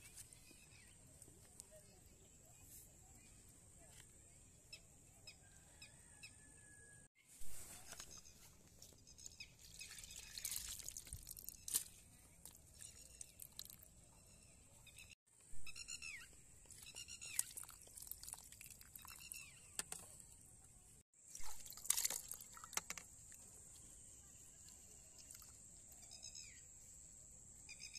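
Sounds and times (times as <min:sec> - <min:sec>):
crunching splashes in wet mud: 0:09.6 - 0:13.9, 0:16.7 - 0:19.5, 0:21.3 - 0:23.4
muddy water splashing from a pipe: 0:09.6 - 0:13.9, 0:17.2 - 0:19.4, 0:21.2 - 0:23.0.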